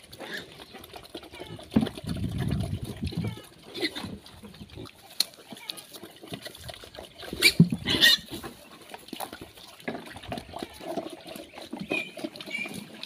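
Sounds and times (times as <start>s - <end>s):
pigs slurping and chewing: 0.0s - 13.0s
pig squeaks: 0.2s - 13.0s
pig call: 7.3s - 8.3s.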